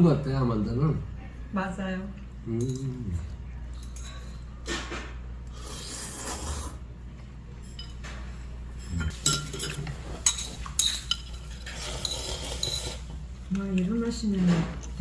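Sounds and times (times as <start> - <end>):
chopsticks and spoons clinking on bowls: 2.2 - 4.9, 7.5 - 15.0
noodles being slurped: 5.6 - 6.8.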